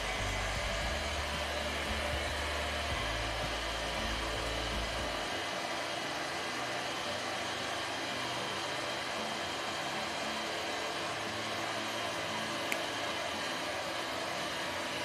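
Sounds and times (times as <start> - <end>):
air blower whooshing: 0.0 - 15.0.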